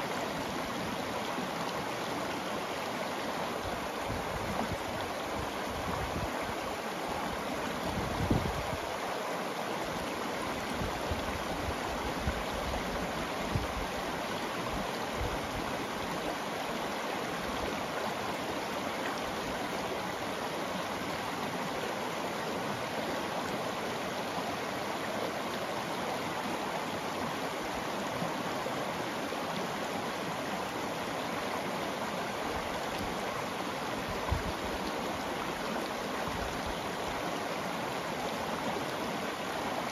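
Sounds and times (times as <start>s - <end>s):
stream rippling over pebbles: 0.0s - 39.9s.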